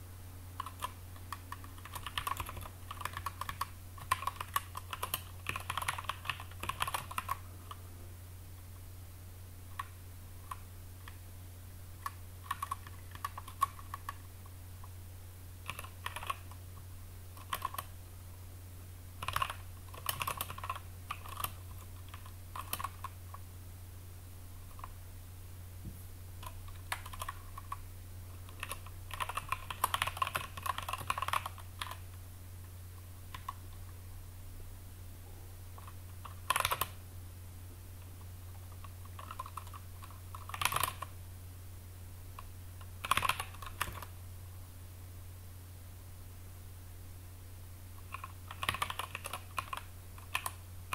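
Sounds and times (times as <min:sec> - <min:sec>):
steady low hum: 0:00.0 - 0:50.9
computer keyboard typing: 0:00.6 - 0:07.8, 0:12.0 - 0:14.2, 0:15.6 - 0:16.6, 0:17.4 - 0:17.9, 0:19.2 - 0:23.2, 0:26.4 - 0:27.8, 0:28.5 - 0:32.0, 0:33.3 - 0:33.9, 0:35.8 - 0:37.0, 0:38.7 - 0:41.1, 0:42.8 - 0:44.1, 0:48.0 - 0:50.9.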